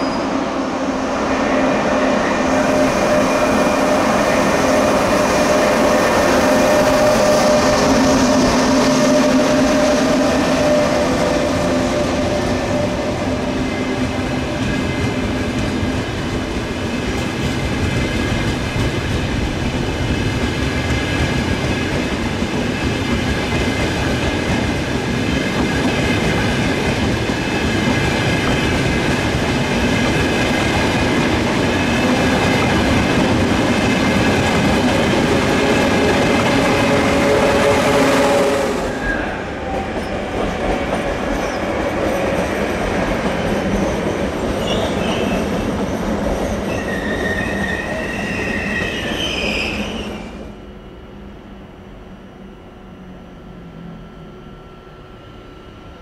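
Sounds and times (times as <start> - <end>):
train rumbling on tracks: 0.0 - 56.0
wheels whining and squealing: 1.4 - 15.2, 46.3 - 50.3.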